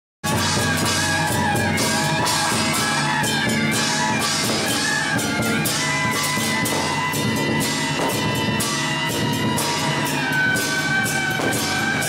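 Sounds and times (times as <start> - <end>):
barrel drum beaten with sticks: 0.2 - 12.0
hand cymbals clashing: 0.2 - 12.0.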